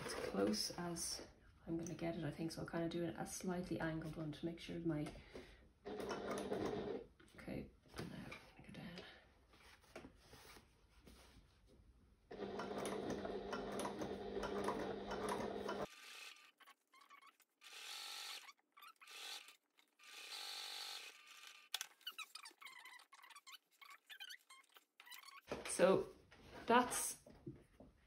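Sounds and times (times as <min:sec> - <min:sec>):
sewing machine running: 0:05.8 - 0:07.0, 0:12.3 - 0:16.3.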